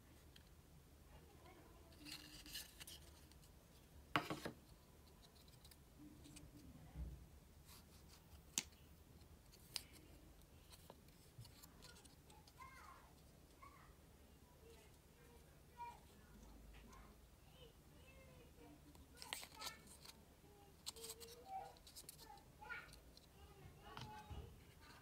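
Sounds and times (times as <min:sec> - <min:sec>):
cardboard and paper rustling: 0:01.8 - 0:03.5, 0:19.0 - 0:25.0.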